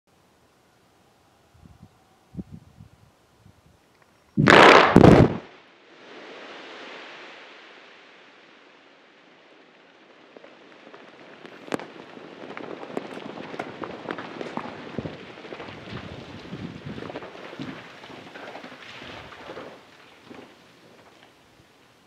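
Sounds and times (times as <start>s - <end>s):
rock blast bangs: 4.4s - 5.5s
rock fragments landing: 10.9s - 21.4s.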